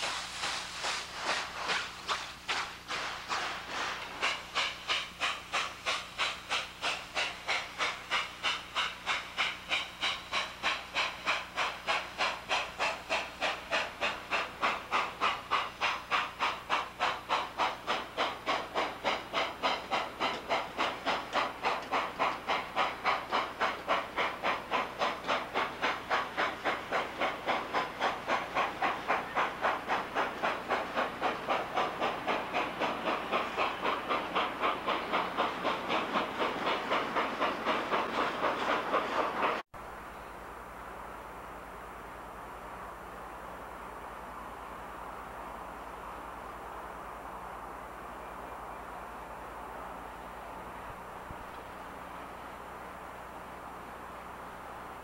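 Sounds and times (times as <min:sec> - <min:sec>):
steam locomotive chuffing: 0:00.0 - 0:40.0.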